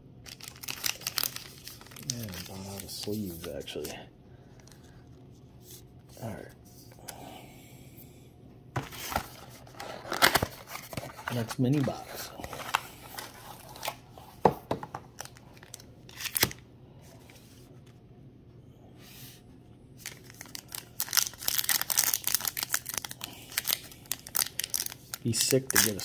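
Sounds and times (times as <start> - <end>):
foil wrapper crinkling: 0.2 - 3.9, 20.0 - 26.0.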